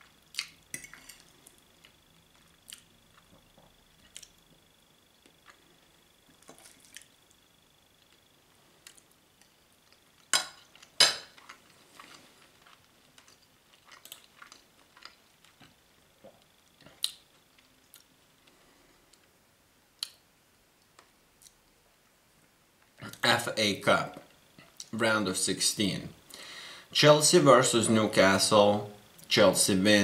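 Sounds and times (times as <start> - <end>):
person chewing food: 0.0 - 7.4, 8.0 - 19.3.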